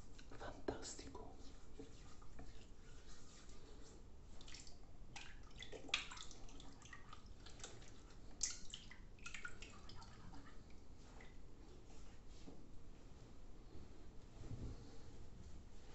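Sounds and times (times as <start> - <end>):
water splashing and dripping: 4.3 - 10.6
sharp water splashes: 4.4 - 7.8.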